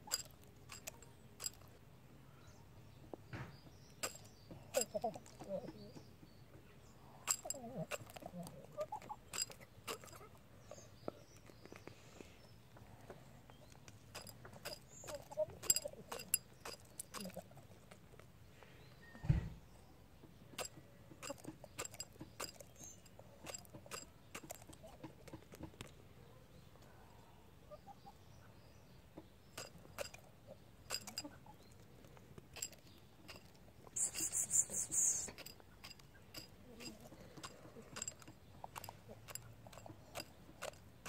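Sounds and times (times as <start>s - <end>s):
dull thump: 19.2s - 19.6s.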